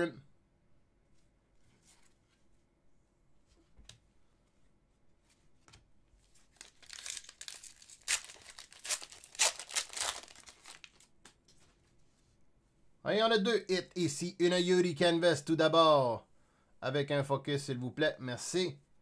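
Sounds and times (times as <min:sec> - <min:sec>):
card pack wrapper tearing: 0:06.5 - 0:11.1.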